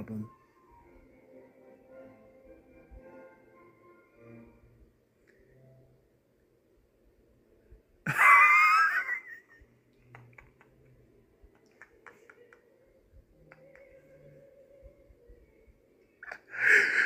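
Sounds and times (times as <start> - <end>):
man squealing laugh: 8.1 - 9.6
stifled wheezy laughter: 8.1 - 10.9, 16.2 - 17.0.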